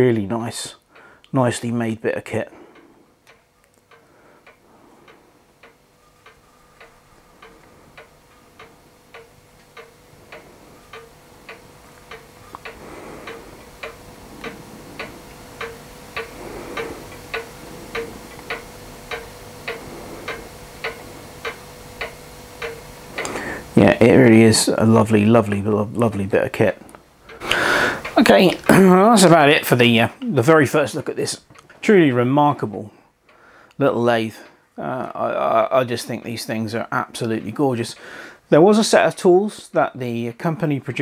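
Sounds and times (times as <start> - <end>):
faint steady hum: 0.0 - 41.0
clock-like ticking: 2.2 - 33.9.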